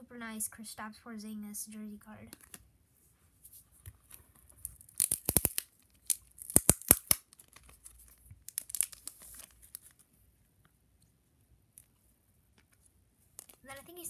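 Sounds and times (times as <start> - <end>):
packaging crackling and ripping: 4.5 - 10.0.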